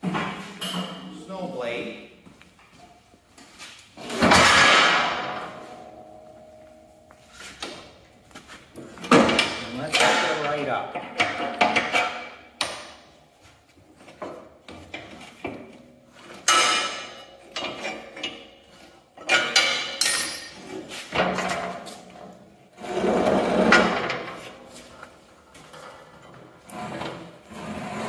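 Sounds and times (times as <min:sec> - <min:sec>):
steel frame clanking and scraping: 0:08.8 - 0:12.5, 0:14.1 - 0:28.0.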